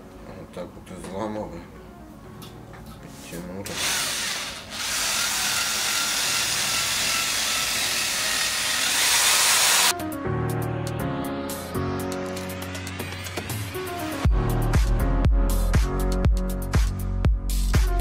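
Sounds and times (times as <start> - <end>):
electric drill running: 3.7 - 9.9.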